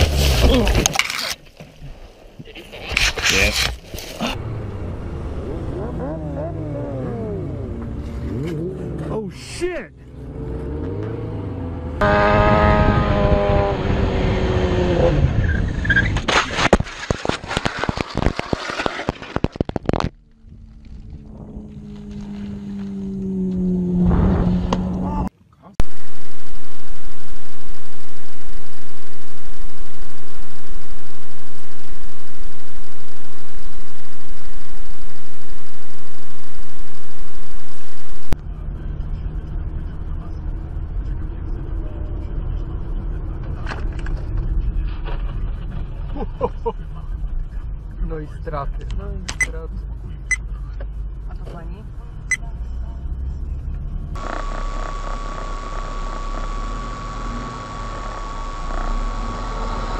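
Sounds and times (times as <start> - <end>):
motorcycle scraping and tumbling: 0.0 - 2.1, 12.1 - 25.1
engine-like hum: 0.0 - 59.9
car driving rumble inside cabin: 20.1 - 25.3, 27.6 - 59.9.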